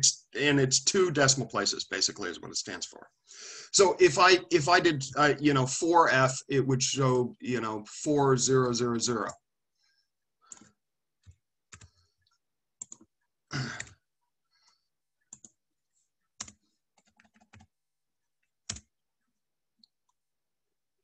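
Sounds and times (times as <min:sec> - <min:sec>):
computer keyboard typing: 0:10.5 - 0:12.0, 0:12.8 - 0:13.2, 0:15.3 - 0:15.6, 0:16.4 - 0:17.8, 0:18.4 - 0:18.9.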